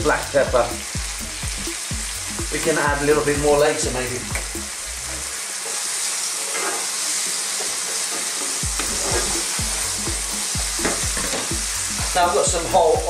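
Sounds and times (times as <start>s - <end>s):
onion and potatoes sizzling in oil: 0.0s - 13.0s
spatula scraping a pan: 5.6s - 9.9s.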